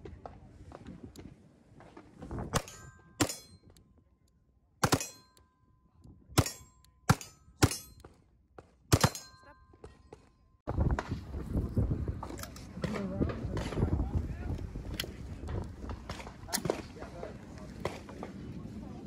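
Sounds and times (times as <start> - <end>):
struck steel ringing: 2.6 - 3.8, 4.8 - 5.6, 6.4 - 8.0, 9.0 - 9.9
pistol shots: 4.8 - 5.3, 6.4 - 8.0, 8.9 - 9.4.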